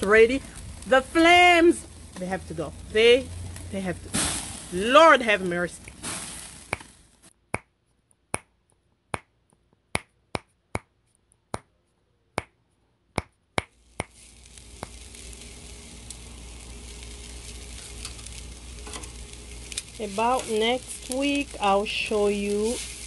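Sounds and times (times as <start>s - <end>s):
chicken sizzling on a grill: 0.0s - 7.2s, 13.7s - 23.0s.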